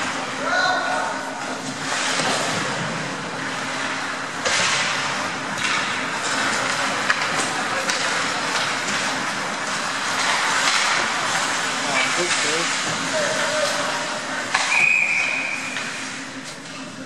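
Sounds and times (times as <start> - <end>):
skate blades scraping ice: 3.6 - 16.7
hockey sticks and puck clicking: 4.4 - 11.7, 12.3 - 15.9.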